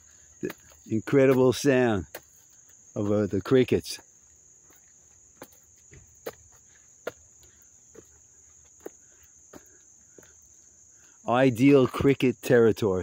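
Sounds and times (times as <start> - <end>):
soft footsteps: 0.0 - 10.8
crickets chirping: 0.0 - 13.0.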